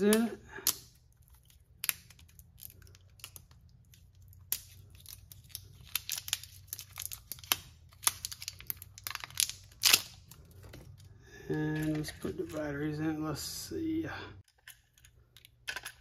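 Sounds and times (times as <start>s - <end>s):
plastic wrapping crackling: 1.1s - 11.0s.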